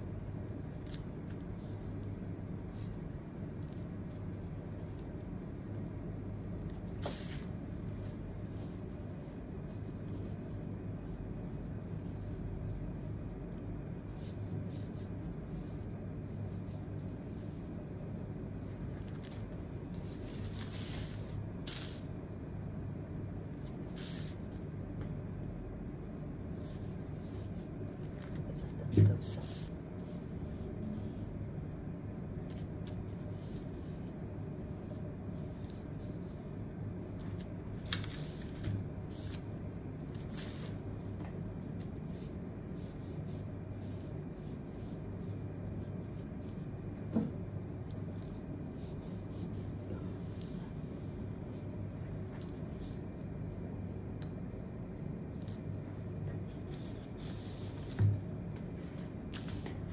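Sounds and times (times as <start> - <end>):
low background hum: 0.0 - 59.9
brush swishing on paper: 6.6 - 13.3, 14.1 - 22.2, 23.6 - 24.6, 26.5 - 31.3, 37.1 - 46.6, 56.5 - 58.1, 58.8 - 59.9.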